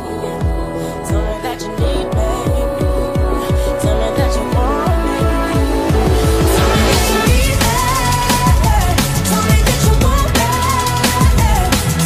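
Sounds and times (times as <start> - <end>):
deep bass notes falling in pitch: 0.0 - 11.8
electronic music with steady beat: 0.0 - 12.0.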